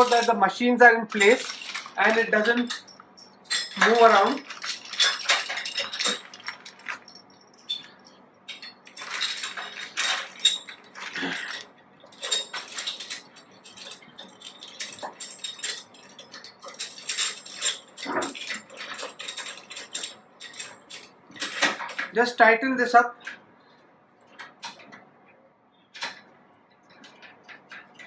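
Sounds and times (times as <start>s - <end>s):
steel clamps clinking and knocking: 0.0s - 0.4s, 1.1s - 22.1s.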